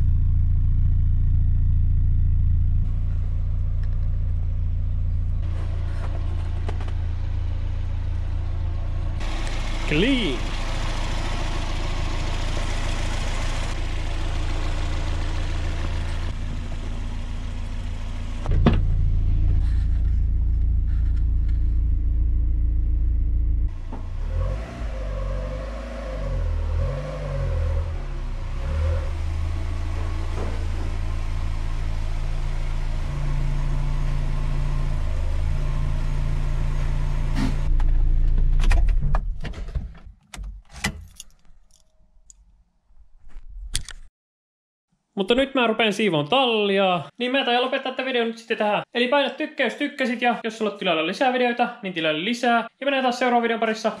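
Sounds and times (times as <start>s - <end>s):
car engine idling and revving: 0.0s - 41.2s.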